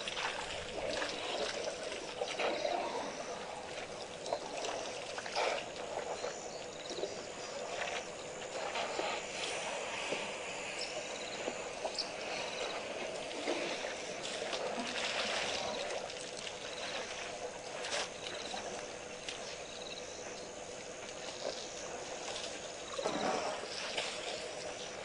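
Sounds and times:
water splashing and trickling: 0.0s - 25.0s
steady hiss: 5.4s - 15.7s.

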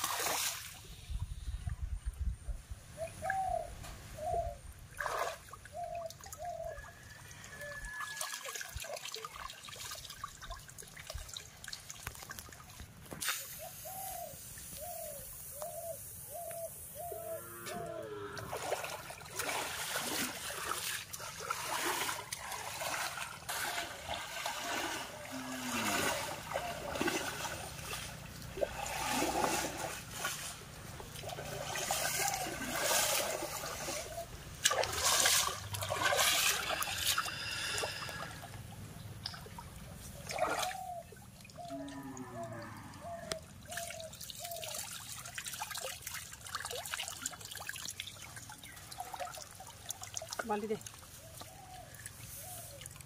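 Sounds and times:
water splashing from wading: 0.0s - 0.9s, 4.9s - 6.4s, 18.4s - 42.3s, 43.5s - 53.0s.

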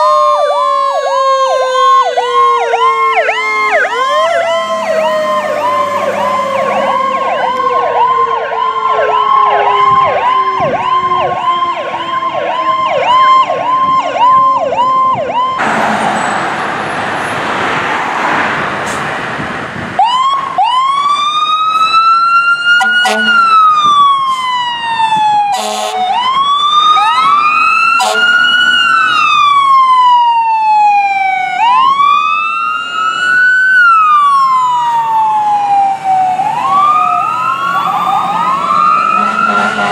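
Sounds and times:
electronic siren yelp: 0.0s - 15.6s, 20.0s - 39.9s
siren tone sliding downward: 0.0s - 16.6s, 20.0s - 39.9s
siren wail: 0.0s - 18.8s, 19.8s - 39.9s
loud rushing noise: 15.6s - 20.0s
loud horn blasts: 22.8s - 23.6s, 25.5s - 26.1s, 28.0s - 28.5s, 39.1s - 39.9s.

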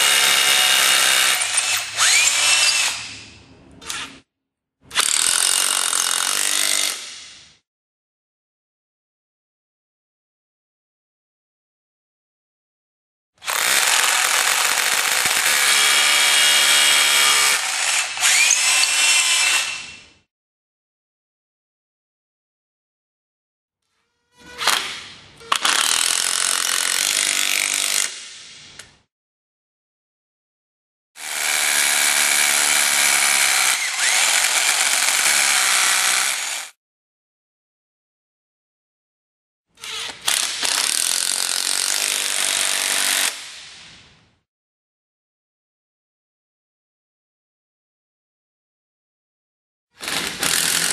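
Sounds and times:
power drill driving screw: 0.0s - 3.1s, 13.4s - 20.0s, 25.5s - 28.5s, 31.2s - 36.7s, 50.0s - 50.9s.

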